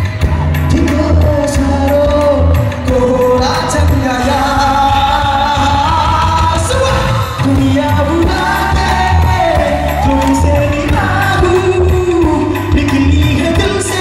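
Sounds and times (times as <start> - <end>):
live band with bass and drums: 0.0 - 14.0
man singing with vibrato: 0.0 - 14.0.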